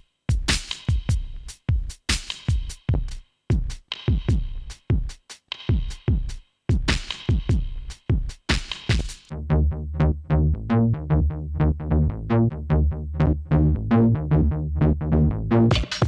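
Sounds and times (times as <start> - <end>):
synthesizer bass line: 9.3 - 16.0.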